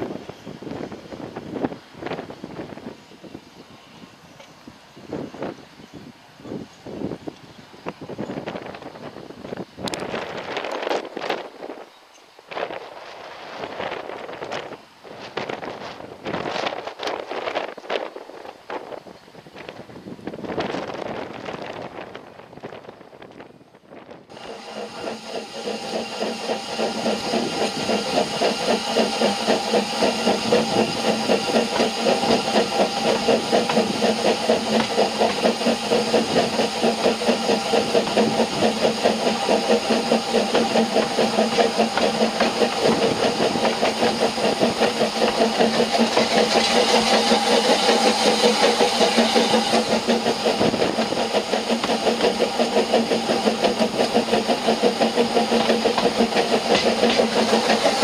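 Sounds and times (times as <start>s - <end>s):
steam locomotive chuffing: 0.0s - 23.1s, 24.2s - 58.0s
steam hiss: 24.3s - 58.0s.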